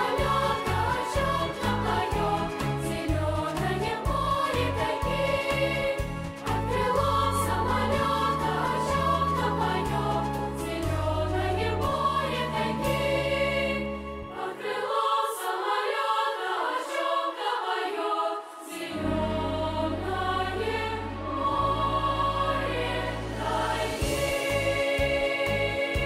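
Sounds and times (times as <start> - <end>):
choir singing: 0.0 - 26.0
deep bass notes: 19.1 - 26.0.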